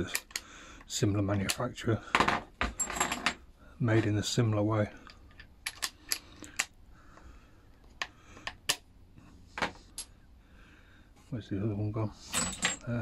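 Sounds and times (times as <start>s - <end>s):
metallic clicks of screwdriver bits: 0.0s - 1.7s, 5.0s - 6.8s.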